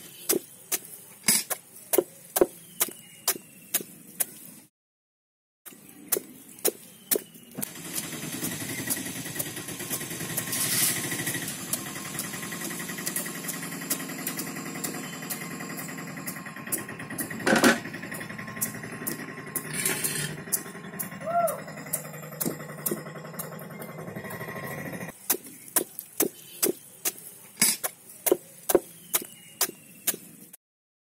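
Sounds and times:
knife striking fruit rind: 6.1 - 7.3, 25.2 - 30.3
engine running steadily: 6.2 - 30.2.

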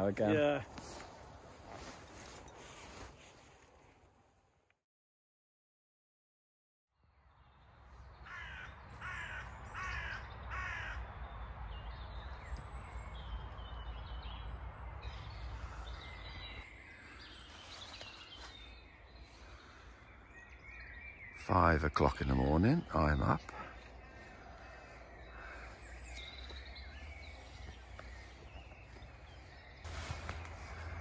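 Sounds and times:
birds chirping: 0.0 - 3.5, 7.3 - 31.0
crow cawing: 8.2 - 11.1, 23.5 - 26.3, 30.6 - 31.0.

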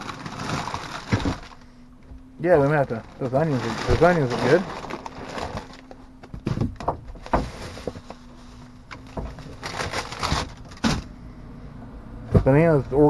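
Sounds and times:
cardboard shifting: 0.0 - 1.7, 2.6 - 11.1
plastic bags crinkling: 0.0 - 1.7, 2.6 - 6.1, 7.2 - 10.8
faint low hum: 0.0 - 13.0.

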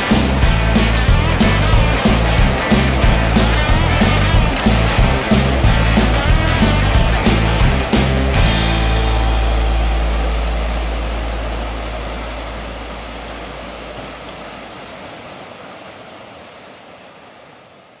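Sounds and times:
rushing whitewater: 0.0 - 18.0
low ringing music note: 8.3 - 14.0.

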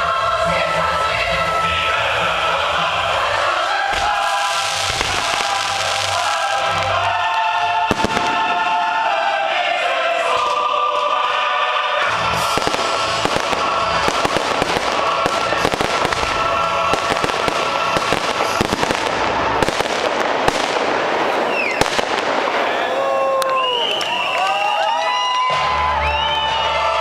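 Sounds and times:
music with long held chords: 0.0 - 22.6, 25.3 - 27.0
fireworks bursting and crackling: 2.6 - 9.6, 12.0 - 24.9.

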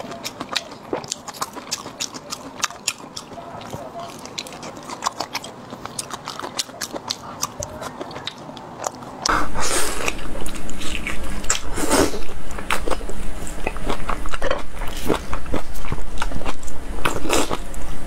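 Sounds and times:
wet biting and chewing: 0.0 - 17.8
low steady hum: 0.0 - 18.0.

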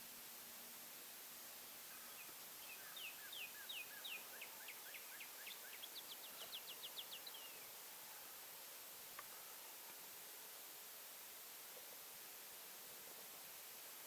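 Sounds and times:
steady hiss: 0.0 - 14.0
songbird singing: 1.4 - 8.4.

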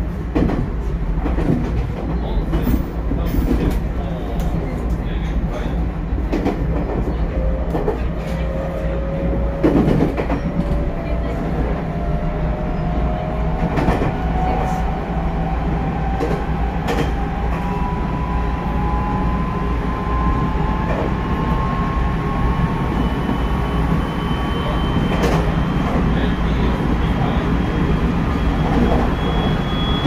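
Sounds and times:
rail joints clacking: 0.0 - 17.8, 25.0 - 30.0
train wheels rumbling on rails: 0.0 - 30.0.

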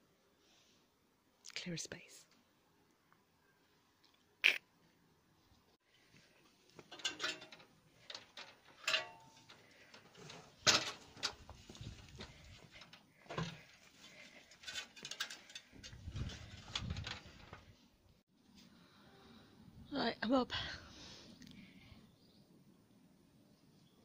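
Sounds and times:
ladder being climbed: 6.8 - 17.6
knocks clanks and scrapes: 6.8 - 17.7.

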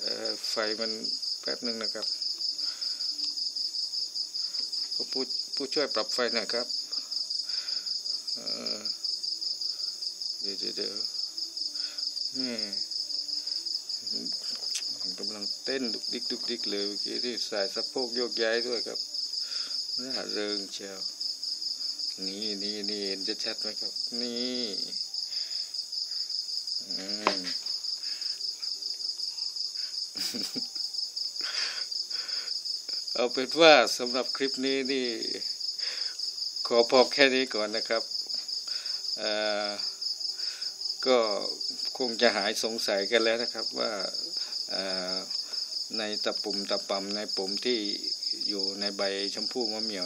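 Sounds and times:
man speaking: 0.0 - 2.1, 5.0 - 6.7, 8.4 - 9.0, 10.4 - 11.1, 12.4 - 12.8, 14.1 - 19.0, 20.0 - 21.0, 22.2 - 25.0, 26.8 - 27.6, 33.2 - 35.4, 36.7 - 38.0, 39.2 - 39.8, 41.0 - 45.3, 45.9 - 50.0
insect trilling: 0.0 - 50.0.

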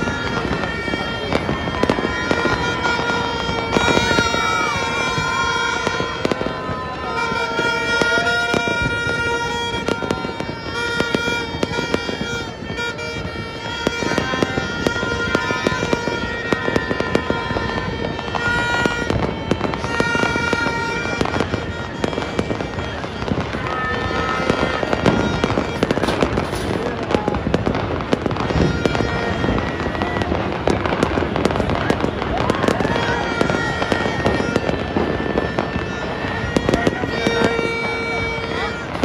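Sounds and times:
fireworks crackling and popping: 0.0 - 39.0.

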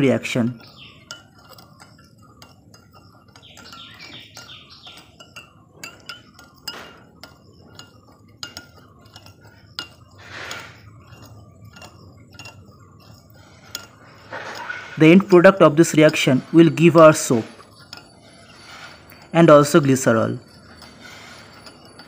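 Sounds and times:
metal spoon clinking on glass bowl: 0.5 - 22.0.

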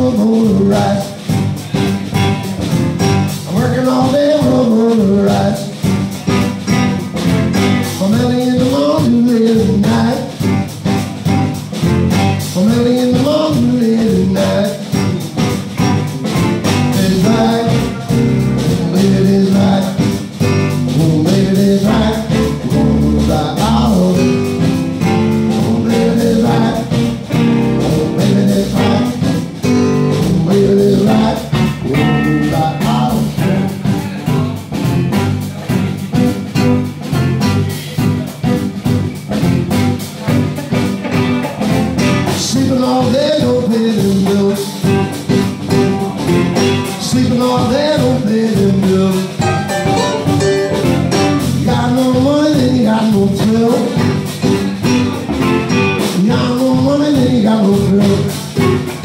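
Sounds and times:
man singing: 0.0 - 11.4, 12.1 - 36.2, 40.2 - 59.0
bass guitar: 0.0 - 59.0
drums: 0.0 - 59.0
electric guitar: 0.0 - 59.0
keyboard: 49.0 - 57.3.

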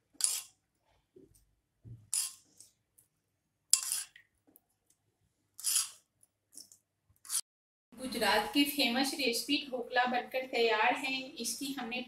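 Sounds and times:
steel spoon scraping a pan: 0.2 - 0.6, 2.1 - 2.6, 3.7 - 4.2, 5.6 - 6.0.

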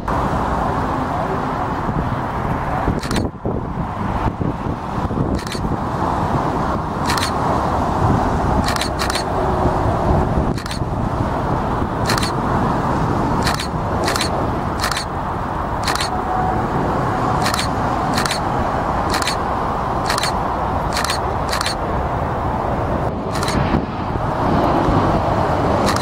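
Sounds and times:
jet engines rumbling: 0.0 - 26.0
sharp clicks: 3.0 - 3.3, 5.3 - 5.7, 7.0 - 7.4, 8.6 - 9.3, 10.5 - 10.9, 12.0 - 12.4, 13.4 - 15.1, 15.8 - 16.2, 17.4 - 18.5, 19.1 - 19.4, 20.0 - 21.8, 23.3 - 23.6.

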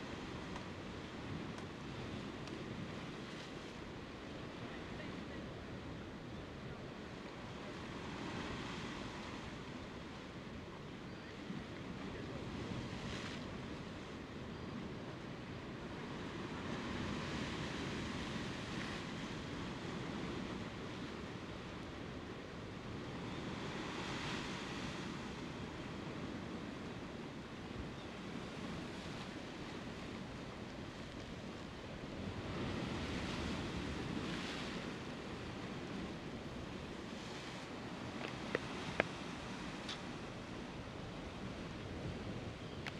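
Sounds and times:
sea surf on rocks: 0.0 - 42.9
wind: 0.0 - 42.9
surf washing over rocks: 28.4 - 42.9.

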